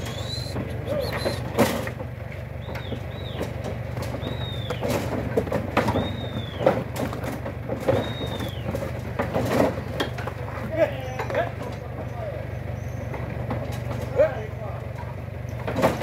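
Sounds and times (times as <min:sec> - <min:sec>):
bird calling: 0:00.0 - 0:01.9, 0:02.6 - 0:05.1, 0:05.8 - 0:06.9, 0:07.8 - 0:09.0, 0:12.4 - 0:13.3
hooves knocking on wooden boards: 0:00.0 - 0:14.2
truck engine idling: 0:00.0 - 0:16.0.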